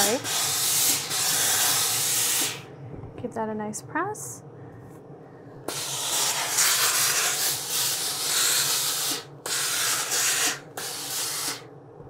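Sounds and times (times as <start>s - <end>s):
steam iron hissing: 0.0s - 2.7s, 5.7s - 11.7s.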